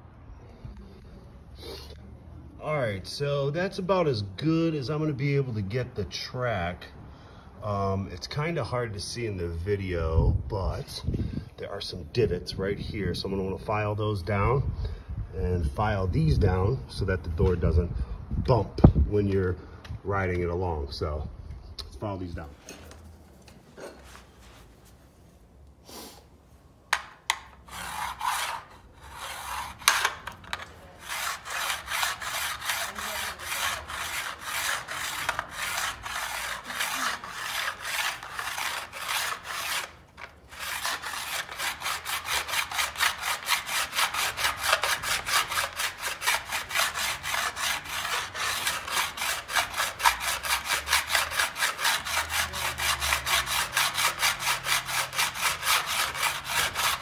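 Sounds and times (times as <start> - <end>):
hand file scraping on aluminum: 27.0 - 57.0.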